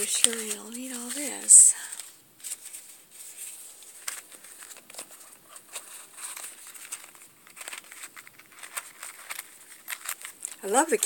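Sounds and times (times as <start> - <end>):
cloth and cardboard rustling: 0.0 - 11.0.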